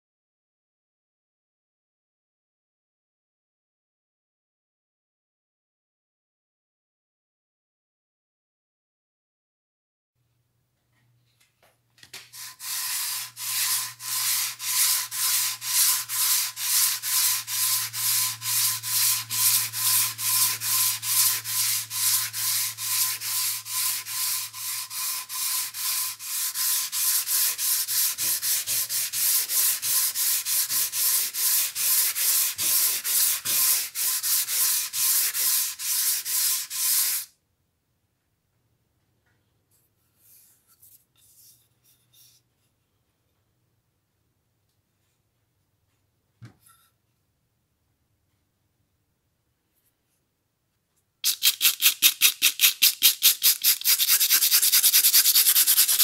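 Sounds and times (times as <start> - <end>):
sandpaper rasping on wood: 12.4 - 37.3, 51.3 - 56.0.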